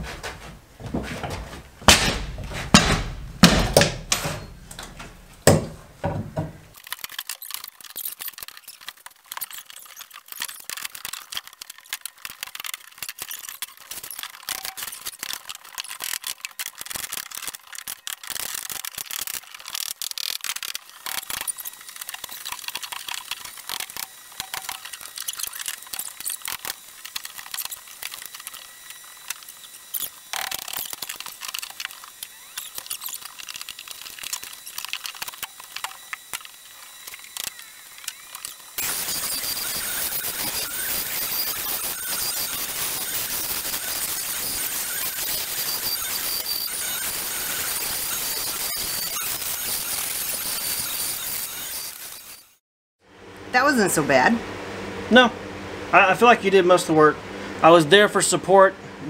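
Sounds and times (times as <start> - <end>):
heavy thumps on subfloor: 0.0 - 4.2
high-pitched clicks and squeaks: 6.7 - 52.6.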